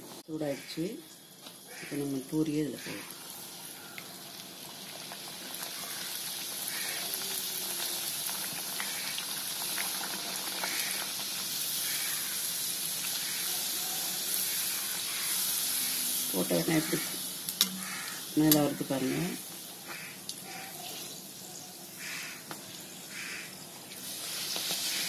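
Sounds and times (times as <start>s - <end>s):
dough deep-frying in oil: 0.0s - 25.0s.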